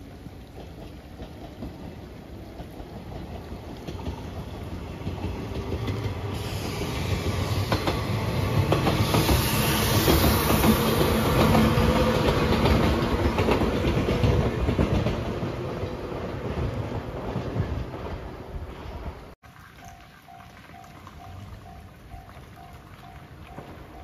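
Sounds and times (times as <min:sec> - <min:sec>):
train wheels clattering over rail joints: 0:00.5 - 0:19.4.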